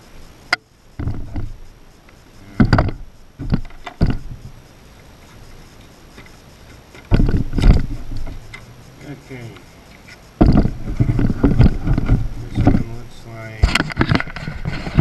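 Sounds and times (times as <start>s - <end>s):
cardboard boxes scraping and knocking: 10.4s - 13.0s, 13.8s - 15.0s.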